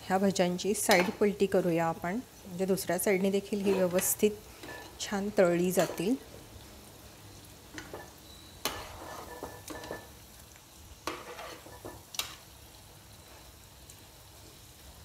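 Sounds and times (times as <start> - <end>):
deep-frying sizzle: 0.0 - 15.0
metal spoon scraping pan: 3.5 - 5.1, 5.7 - 6.2, 7.8 - 10.1, 11.0 - 12.3.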